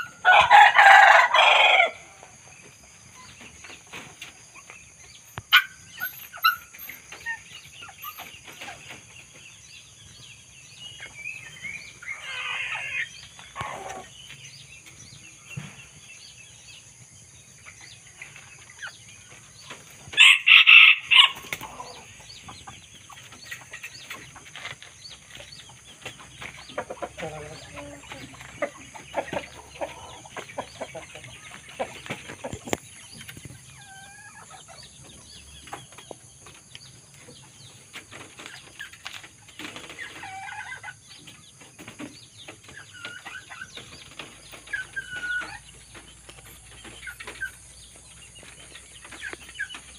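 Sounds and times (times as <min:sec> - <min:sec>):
rooster crowing: 0:00.1 - 0:02.1
small bird calls: 0:01.8 - 0:49.9.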